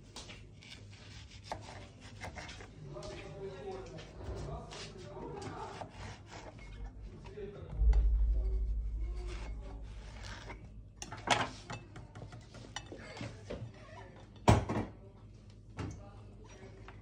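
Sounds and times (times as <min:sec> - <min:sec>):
knife slicing fruit on wooden board: 0:00.6 - 0:02.7, 0:05.4 - 0:06.7.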